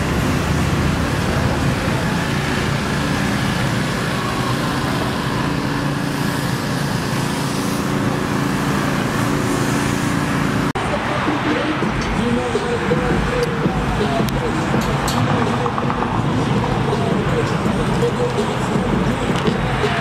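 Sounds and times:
vehicle engine idling: 0.0 - 20.0.

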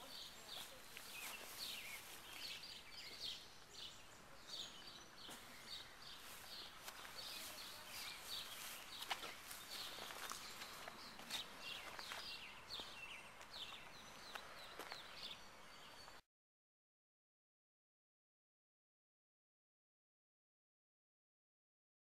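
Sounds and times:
birds chirping: 0.0 - 16.2.

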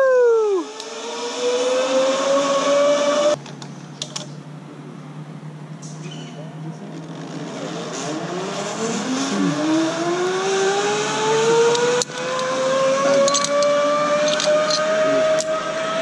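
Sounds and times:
zip line pulleys whining on cable: 0.4 - 3.4, 7.2 - 16.0
carabiners clinking: 11.6 - 15.6
sharp metal click: 13.1 - 15.5.

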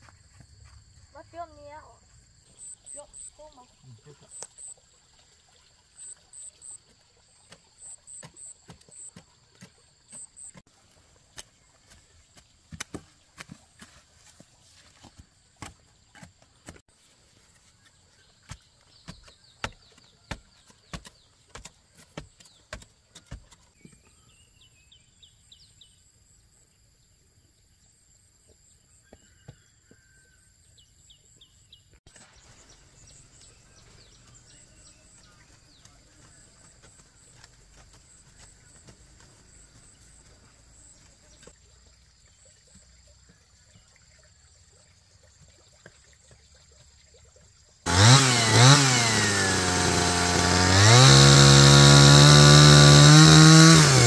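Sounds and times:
birds chirping: 1.1 - 4.8, 17.6 - 25.9, 31.1 - 41.6
wooden pole knocking soil: 7.4 - 16.9, 17.5 - 24.1, 34.0 - 40.5.

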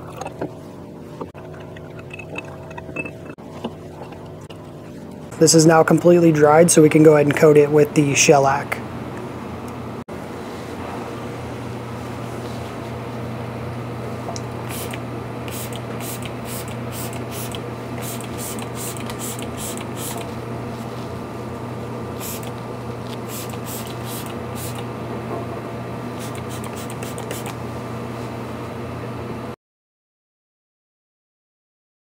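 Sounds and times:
steady low hum: 0.0 - 29.6
spray bottle spritzing: 14.7 - 20.3, 22.2 - 22.5, 23.3 - 24.8, 26.2 - 27.6.

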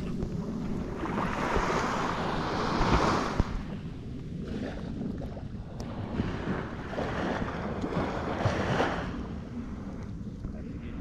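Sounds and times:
sea waves washing on shore: 0.0 - 11.0
wind rumbling on microphone: 0.0 - 11.0.

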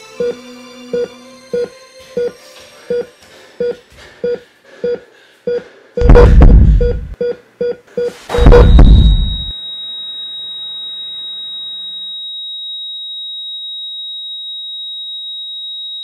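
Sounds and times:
high steady tone: 0.0 - 7.2, 8.3 - 12.9
loud noise burst: 6.0 - 7.1, 8.3 - 9.5
electronic beeps: 6.0 - 9.9.

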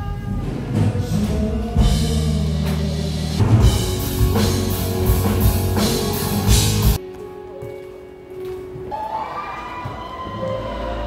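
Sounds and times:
rock band music: 0.0 - 7.5.

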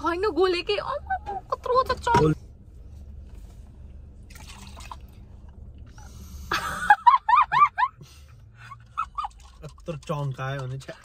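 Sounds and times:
low steady hum: 0.0 - 11.0
person laughing: 6.5 - 8.0.

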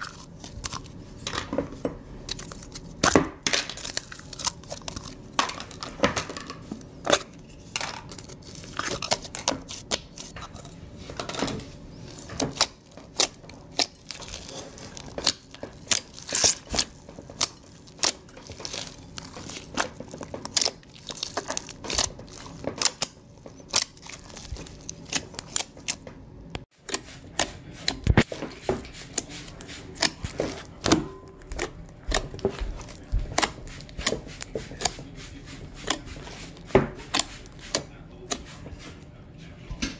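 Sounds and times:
slime squelching and popping: 2.3 - 6.4, 12.0 - 26.0, 29.0 - 38.4.

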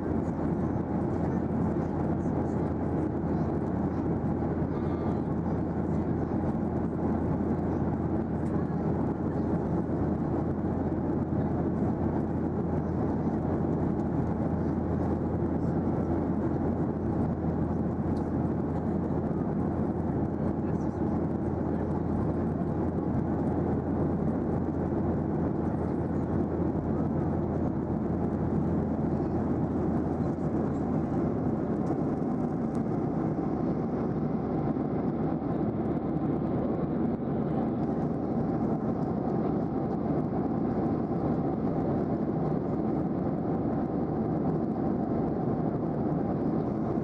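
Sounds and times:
jet engines droning: 0.0 - 47.0.

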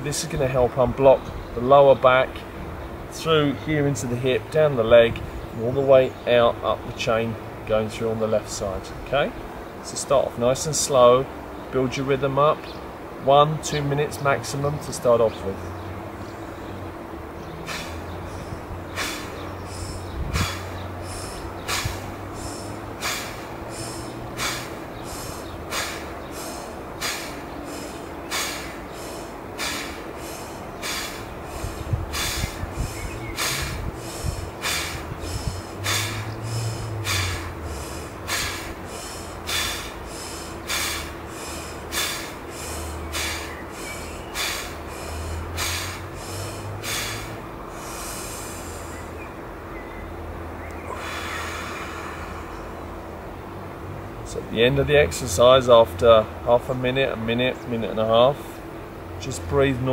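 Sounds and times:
man breathing hard: 17.6 - 49.2, 50.8 - 53.0.

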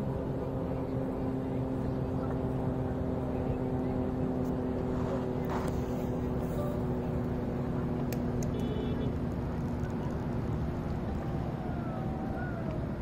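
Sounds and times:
droning hum: 0.0 - 13.0
road traffic rumble: 0.0 - 13.0.

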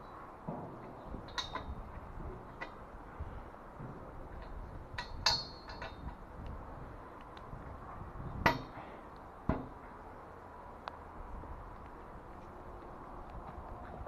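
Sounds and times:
sharp metallic clanks: 0.0 - 2.8, 3.9 - 6.2, 8.4 - 9.9.

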